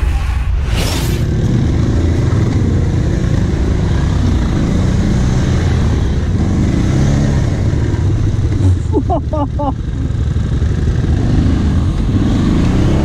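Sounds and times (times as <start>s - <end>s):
short swoosh: 0.0s - 1.4s
quad bike engine running: 1.3s - 13.0s.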